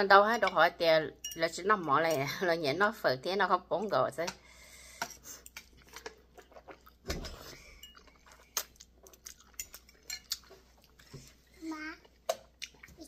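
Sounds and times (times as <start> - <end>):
chewing: 5.3 - 11.4, 12.0 - 13.0
spoon and fork clinking on bowl: 9.5 - 10.4.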